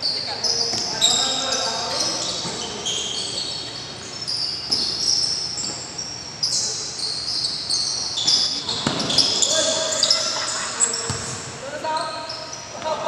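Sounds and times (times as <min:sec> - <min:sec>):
sneakers squeaking on court: 0:00.0 - 0:13.0
basketball bouncing: 0:08.3 - 0:09.5, 0:11.0 - 0:11.5.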